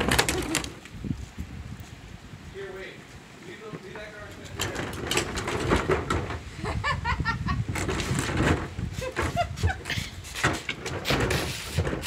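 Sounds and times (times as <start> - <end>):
wheeled bins dragged on asphalt: 0.0 - 1.6, 2.5 - 12.0
woman laughing: 6.5 - 7.7, 8.9 - 10.3.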